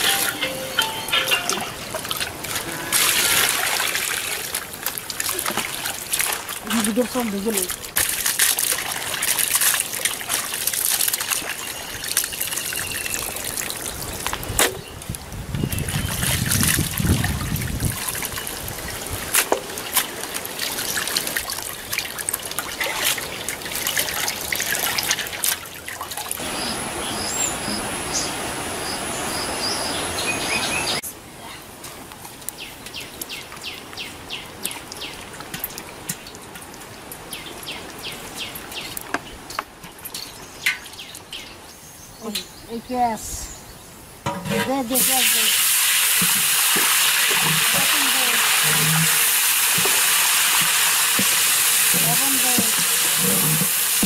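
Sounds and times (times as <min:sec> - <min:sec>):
water splashing in metal basin: 0:00.0 - 0:14.4, 0:15.7 - 0:26.4, 0:45.0 - 0:54.0.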